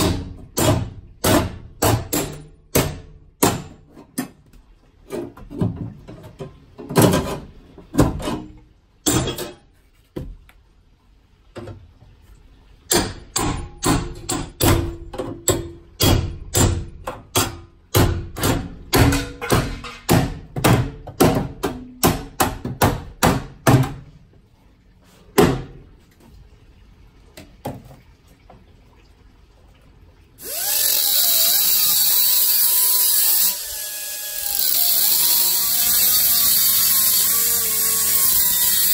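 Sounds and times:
angle grinder cutting sheet metal: 0:30.4 - 0:38.9.

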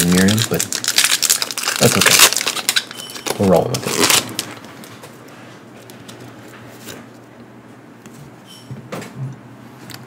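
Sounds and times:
foil wrapper crinkling: 0:00.0 - 0:05.1
room hum: 0:00.0 - 0:10.0.

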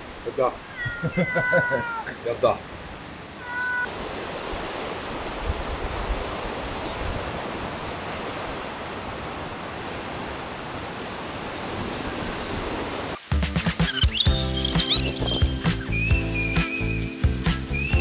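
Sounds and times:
cat meowing: 0:00.7 - 0:02.2, 0:03.4 - 0:03.9.

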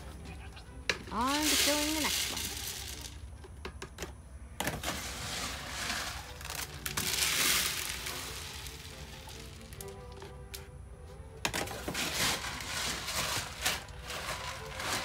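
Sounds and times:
grain pouring into feeder: 0:01.2 - 0:03.3, 0:04.7 - 0:10.2, 0:11.6 - 0:15.0.

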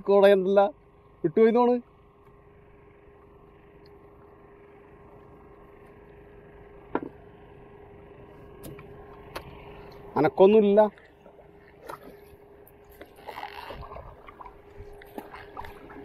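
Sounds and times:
faint steady hum: 0:00.0 - 0:16.0
water washing: 0:10.8 - 0:16.0.

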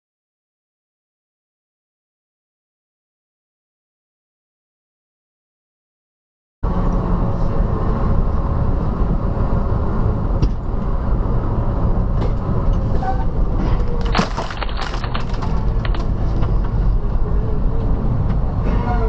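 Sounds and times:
truck engine and road rumble: 0:06.6 - 0:19.0.

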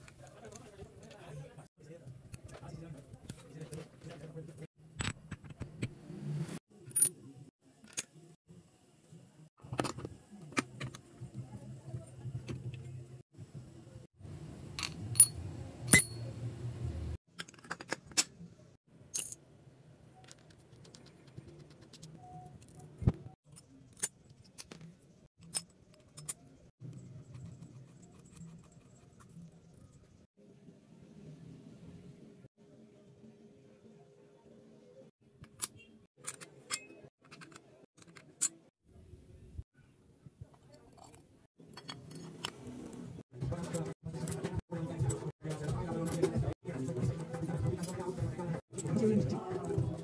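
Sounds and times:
metal engine parts clinking: 0:14.8 - 0:16.3, 0:41.0 - 0:42.5.

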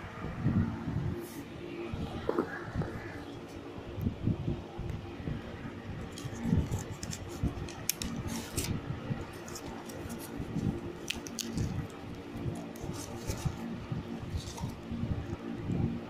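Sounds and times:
plastic wrapping crinkling: 0:06.1 - 0:08.7, 0:09.3 - 0:13.7.

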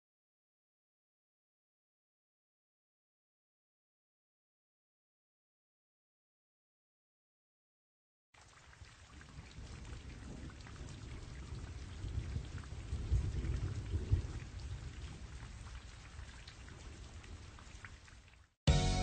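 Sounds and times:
rain falling: 0:08.4 - 0:18.6
low rumble of thunder: 0:08.9 - 0:18.0.

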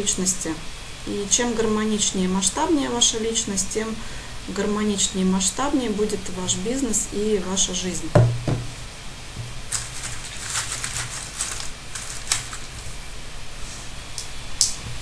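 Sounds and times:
low steady hum: 0:00.0 - 0:15.0
thump: 0:08.2 - 0:08.8
light clicks and rustles: 0:09.7 - 0:12.9.

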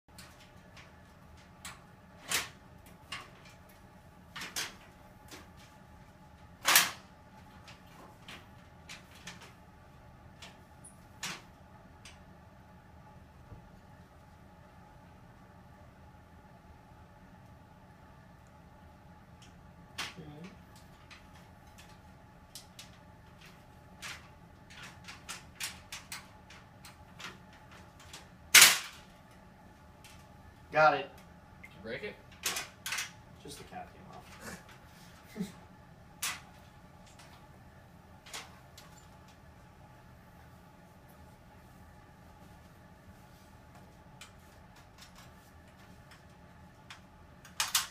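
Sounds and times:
ironing board clicking and knocking: 0:06.6 - 0:09.6.

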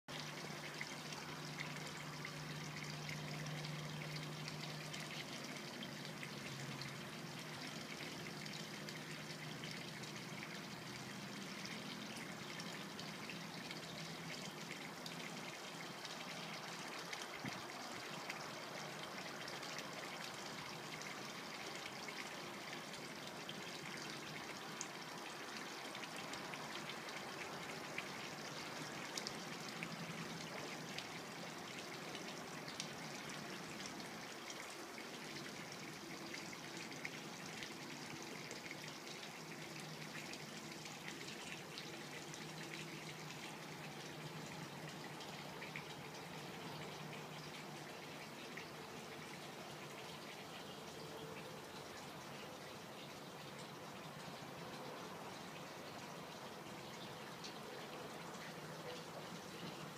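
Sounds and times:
pool water trickling: 0:00.1 - 0:59.9.

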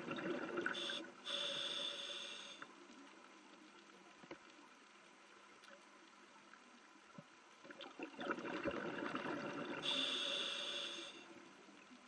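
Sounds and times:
faint steady hiss: 0:00.0 - 0:12.0
bubbly rushing water: 0:07.7 - 0:09.8.

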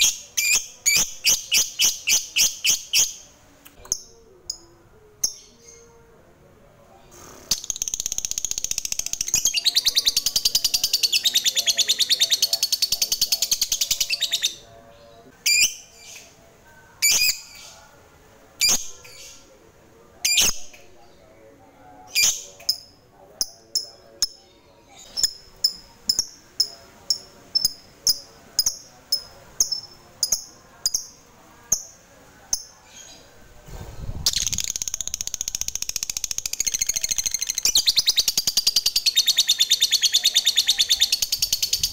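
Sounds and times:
lovebird chattering trill and chirps: 0:07.5 - 0:14.7, 0:34.3 - 0:41.9.

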